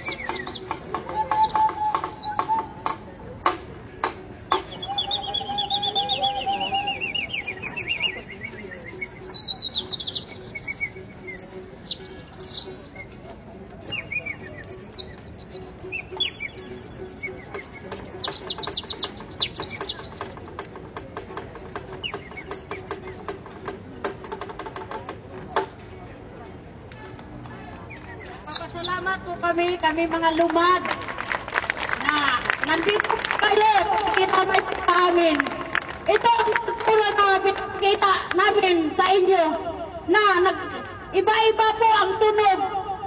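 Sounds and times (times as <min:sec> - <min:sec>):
high bird-like chirps and trills: 0:00.0 - 0:02.4, 0:04.6 - 0:13.2, 0:13.9 - 0:20.6, 0:22.0 - 0:23.4.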